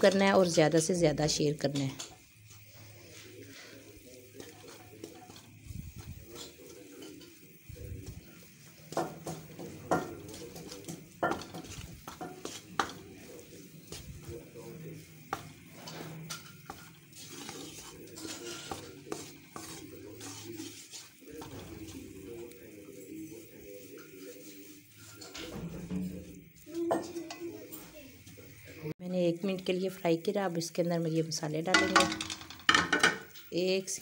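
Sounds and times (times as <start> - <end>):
faint sizzle: 0.0 - 34.0
spatula scraping metal pan: 15.2 - 21.9.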